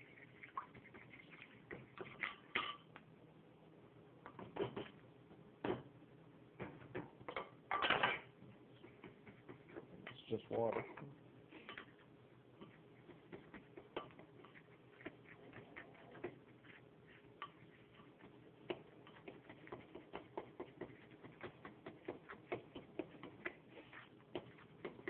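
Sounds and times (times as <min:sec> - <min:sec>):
fork stirring batter in bowl: 0:00.0 - 0:02.9, 0:08.6 - 0:25.0.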